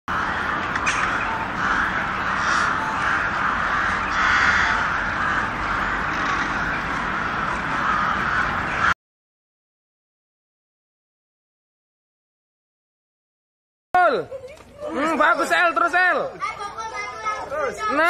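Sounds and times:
crows cawing: 0.1s - 9.0s.

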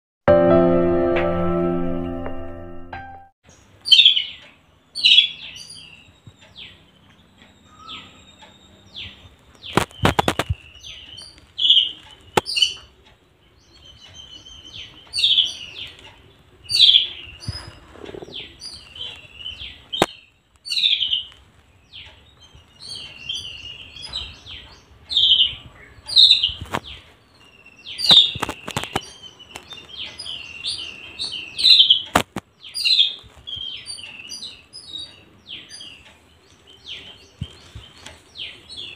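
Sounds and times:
sparrow chirping: 3.5s - 38.9s
sharp clicks: 9.5s - 13.2s.

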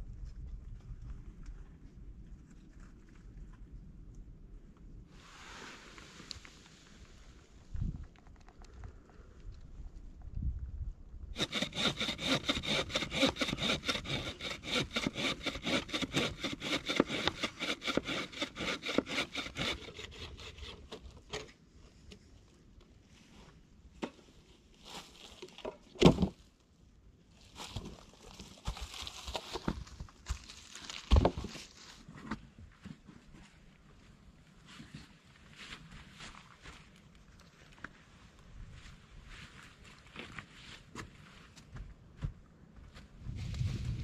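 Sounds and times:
hand saw cutting branch: 11.4s - 21.0s
rustling dry leaves: 24.7s - 25.6s, 27.3s - 32.0s.

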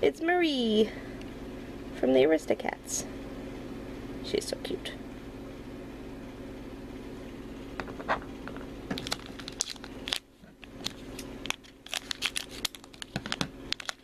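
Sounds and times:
foil pouch crinkling and tearing: 8.9s - 14.0s.

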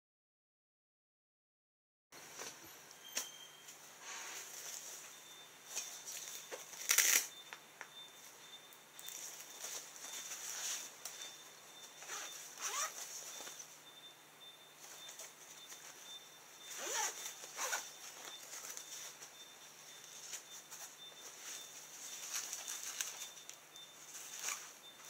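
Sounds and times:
fabric handling: 9.1s - 13.7s, 16.7s - 25.0s
zippers pulled open and shut: 12.0s - 13.0s, 16.8s - 17.9s.

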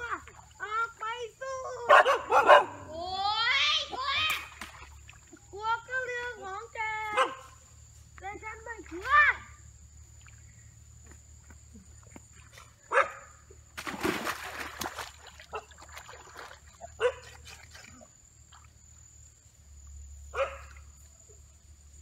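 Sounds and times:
dog barking: 1.9s - 2.9s, 7.1s - 7.6s, 12.9s - 13.3s, 17.0s - 17.4s, 20.3s - 20.8s.

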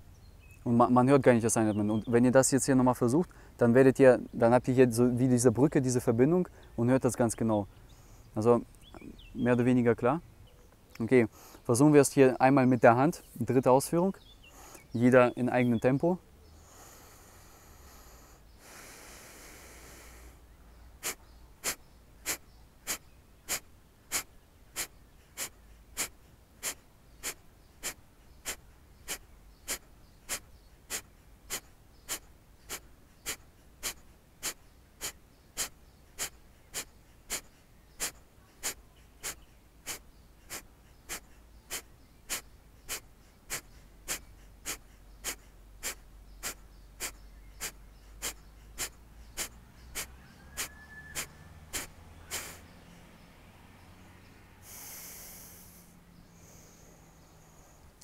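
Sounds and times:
man's forceful nasal exhalations: 16.6s - 20.4s, 21.0s - 52.6s, 54.6s - 57.8s.

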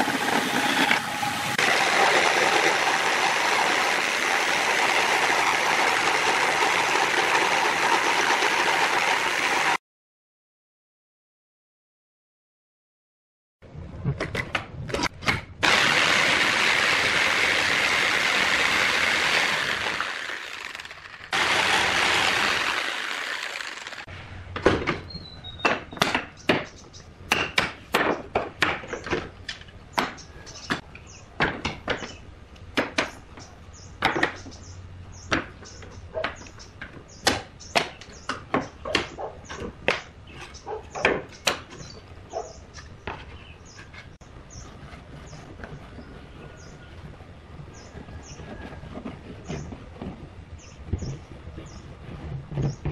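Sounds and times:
jigsaw cutting wood: 0.0s - 9.8s, 15.6s - 24.1s.

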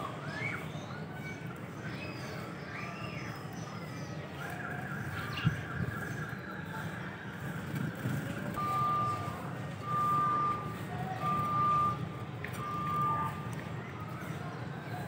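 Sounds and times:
low engine rumble: 5.6s - 15.0s
reversing alarm beeping: 8.5s - 13.6s.

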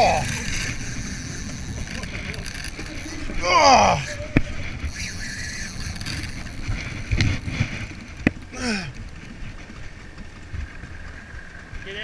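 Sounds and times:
boat low rumble: 0.0s - 12.0s.

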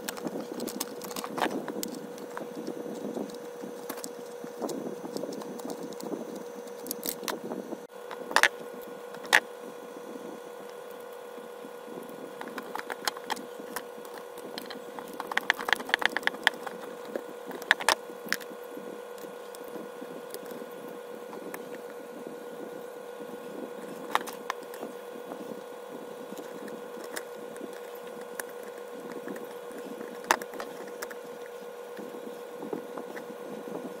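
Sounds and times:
plastic and metal parts clicking: 0.0s - 7.4s, 12.4s - 18.5s, 23.9s - 24.8s, 26.3s - 32.1s
steady background hum: 0.0s - 34.0s.

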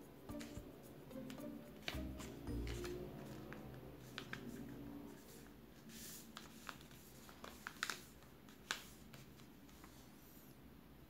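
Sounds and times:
paper rustling: 1.8s - 10.4s
paper sliding swish: 1.9s - 8.0s.

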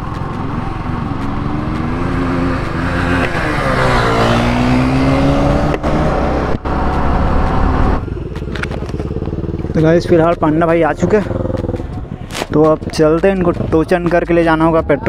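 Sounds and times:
wind noise rushing: 0.0s - 8.2s
motorcycle engine accelerating: 0.0s - 13.6s.

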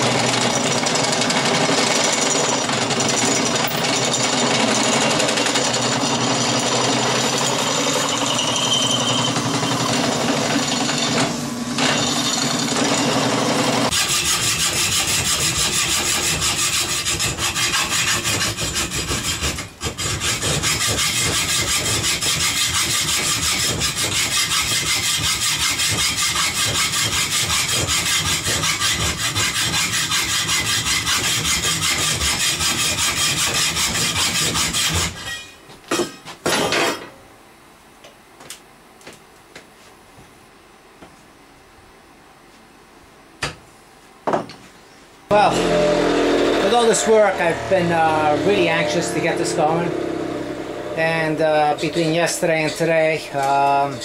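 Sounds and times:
rasping abrading on steel rod: 13.9s - 35.6s.

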